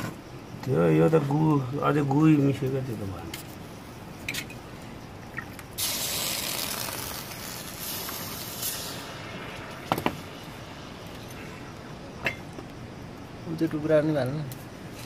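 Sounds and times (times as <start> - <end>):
hot lead hissing on wet mould: 5.8 - 12.2.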